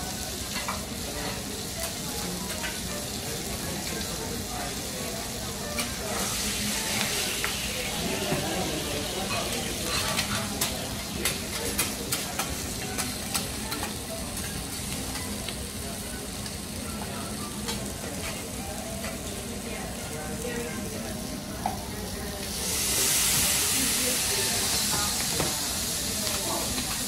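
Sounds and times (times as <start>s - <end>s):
seafood sizzling on griddle: 0.0s - 27.0s
loud steam hiss: 22.5s - 26.8s.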